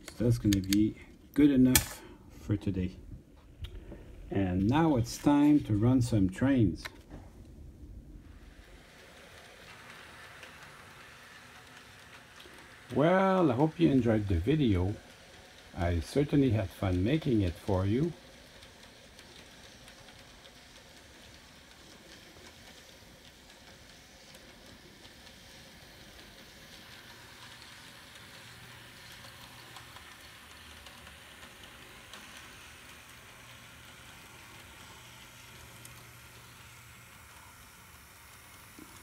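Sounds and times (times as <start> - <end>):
model train motor hum: 8.2 - 39.0.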